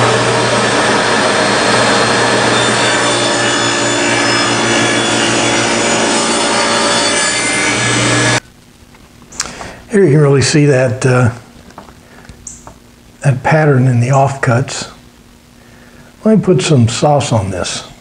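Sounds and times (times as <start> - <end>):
table saw cutting wood: 0.0 - 8.4.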